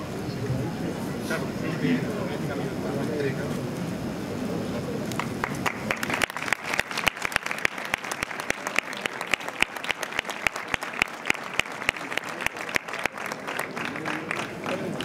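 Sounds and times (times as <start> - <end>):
audience applauding: 5.0 - 15.0
close distinct claps: 5.1 - 15.0.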